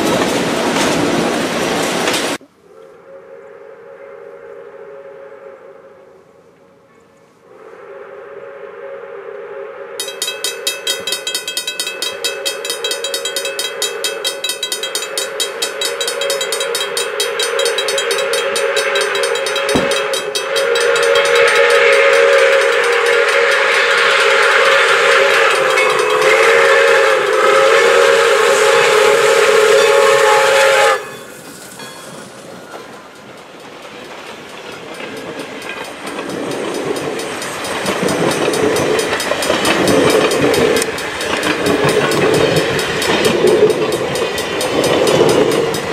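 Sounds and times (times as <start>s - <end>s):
train cars rumbling and clattering: 0.0s - 2.4s, 10.0s - 45.9s
steam whistle blasts: 2.6s - 11.2s, 12.0s - 31.8s
crossing bell ringing: 10.0s - 45.9s.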